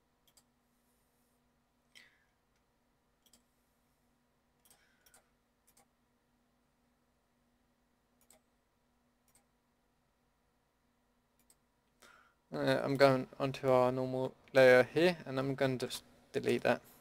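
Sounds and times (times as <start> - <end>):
faint steady hum: 0.0 - 17.0
computer mouse clicks: 0.2 - 0.5, 1.9 - 3.5, 4.6 - 5.9, 8.2 - 8.5, 9.2 - 9.5, 11.4 - 11.6.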